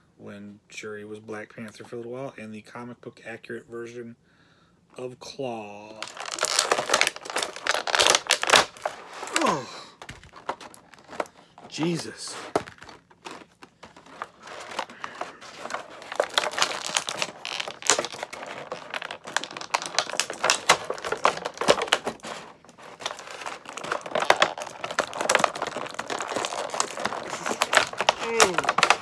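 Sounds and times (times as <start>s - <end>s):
plastic packaging crinkling: 5.9s - 29.0s.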